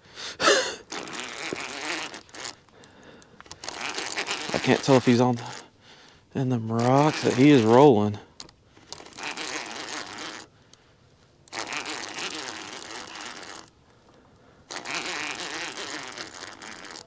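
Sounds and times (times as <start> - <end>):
fishing reel clicking whir: 0.9 - 5.7, 6.7 - 10.8, 11.4 - 13.8, 14.7 - 17.0.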